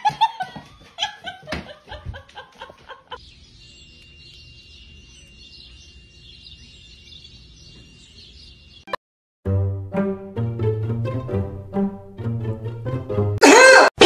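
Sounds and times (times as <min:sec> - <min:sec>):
people laughing: 0:00.0 - 0:03.2
small birds chirping: 0:02.2 - 0:09.0.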